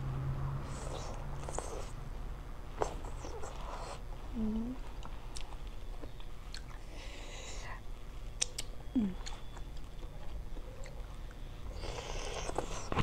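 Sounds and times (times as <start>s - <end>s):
wet chewing: 8.3s - 11.1s, 11.8s - 13.0s
mouth clicks: 8.4s - 9.8s.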